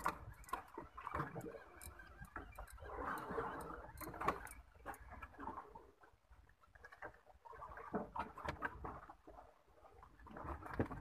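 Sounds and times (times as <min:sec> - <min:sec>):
fishing reel clicking and whirring: 0:00.0 - 0:05.5.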